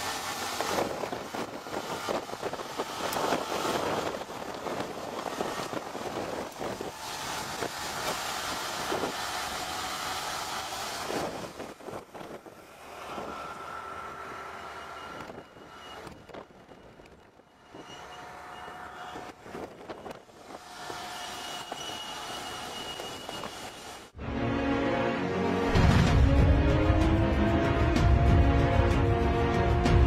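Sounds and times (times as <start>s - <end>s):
rotary bed former churning soil: 0.0s - 16.9s
faint gear whine: 11.0s - 24.1s.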